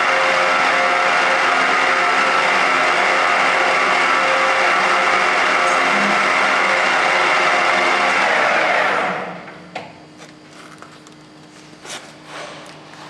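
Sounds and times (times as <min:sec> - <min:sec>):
lathe running and winding down: 0:00.0 - 0:09.6.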